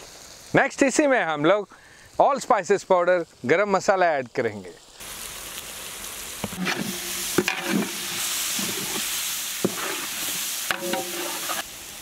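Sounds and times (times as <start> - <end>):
masala sizzling in oil: 0.0 - 12.0
metal ladle scraping a pot: 6.5 - 11.6.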